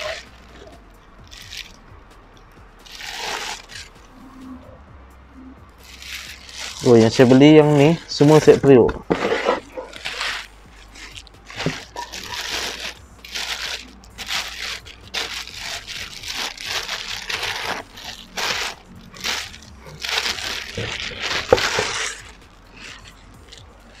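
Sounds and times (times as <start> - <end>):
plastic bag crinkling: 0.0 - 1.8, 2.9 - 4.0, 5.8 - 24.0.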